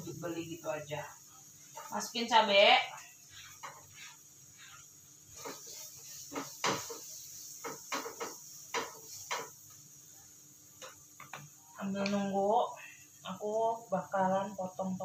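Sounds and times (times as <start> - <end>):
oil sizzling: 0.0 - 15.0
spatula scraping a frying pan: 3.2 - 9.7.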